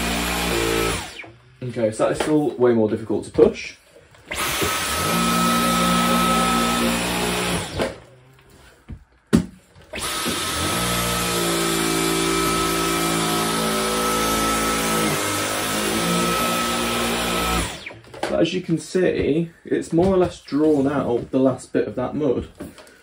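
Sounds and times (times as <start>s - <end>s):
vacuum cleaner motor whine: 0.0s - 1.4s, 4.3s - 8.2s, 9.9s - 18.0s.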